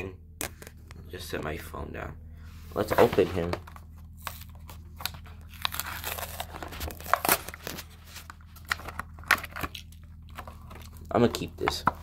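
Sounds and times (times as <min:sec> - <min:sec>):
plastic blister pack tearing: 0:04.3 - 0:07.9.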